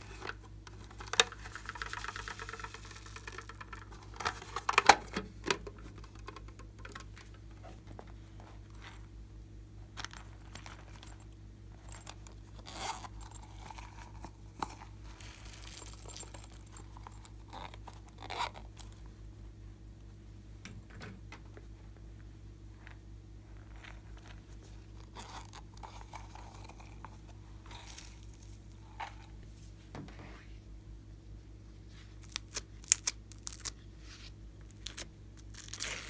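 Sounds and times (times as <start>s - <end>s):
foam beads rattling in plastic box: 0.0s - 7.3s, 11.8s - 18.5s, 25.0s - 29.1s.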